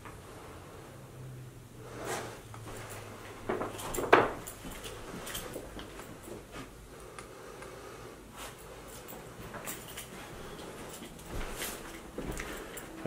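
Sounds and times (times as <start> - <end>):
debris clattering underfoot: 2.7 - 6.5.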